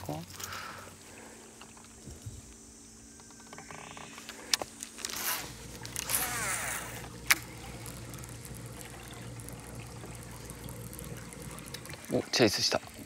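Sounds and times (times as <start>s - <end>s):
fishing reel whirring: 2.6s - 13.0s
sharp reel clicks: 3.2s - 12.0s.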